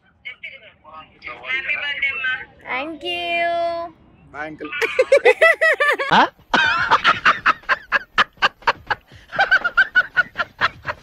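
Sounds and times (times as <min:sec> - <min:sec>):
woman laughing hard: 0:04.8 - 0:11.0.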